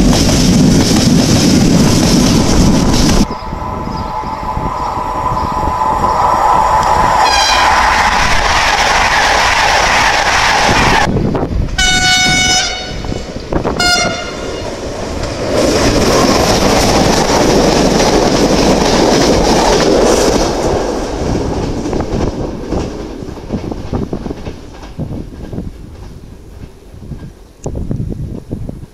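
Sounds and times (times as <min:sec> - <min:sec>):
passenger train passing at speed: 0:00.0 - 0:28.9
train horn blasts: 0:07.2 - 0:07.8, 0:11.8 - 0:14.7.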